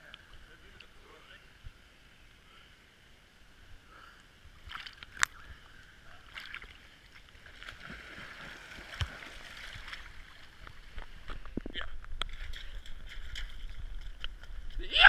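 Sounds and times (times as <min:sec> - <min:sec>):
water splashing and sloshing: 0:04.5 - 0:14.8.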